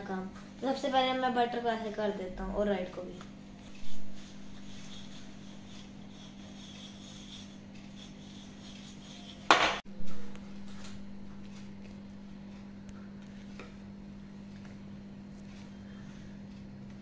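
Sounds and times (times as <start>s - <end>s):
steady low hum: 0.0s - 17.0s
spatula scraping in glass bowl: 3.6s - 9.8s.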